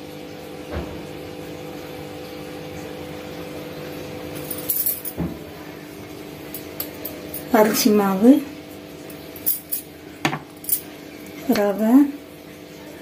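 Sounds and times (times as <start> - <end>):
steel bowls knocking on counter: 10.2 - 10.5.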